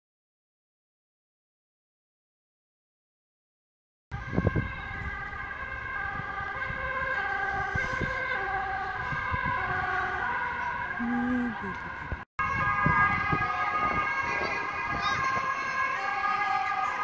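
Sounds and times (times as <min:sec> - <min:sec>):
two-tone sirens: 0:04.1 - 0:17.0.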